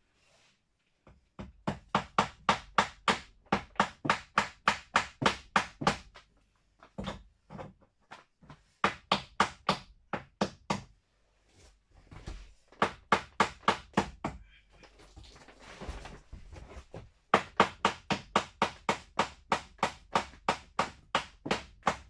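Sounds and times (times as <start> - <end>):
hammer driving nails into wood: 1.4 - 6.2, 8.8 - 10.9, 12.8 - 14.4, 17.3 - 22.0.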